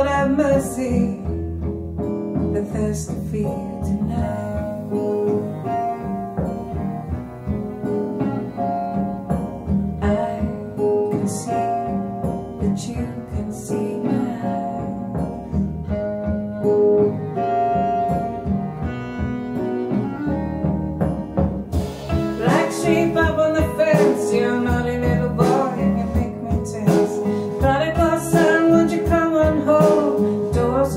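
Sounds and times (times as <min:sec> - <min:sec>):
recorded instrumental music: 0:00.0 - 0:30.9.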